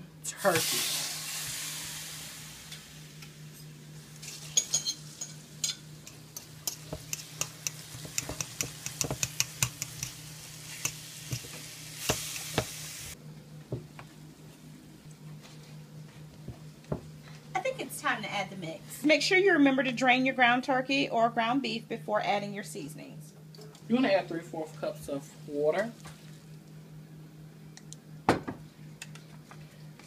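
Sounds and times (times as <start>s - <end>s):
meat sizzling in a frying pan: 0.4s - 13.2s.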